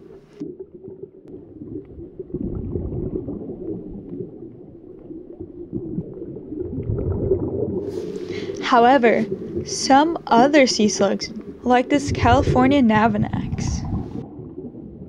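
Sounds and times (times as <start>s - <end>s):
underwater rumbling and bubbling: 0.0s - 15.0s.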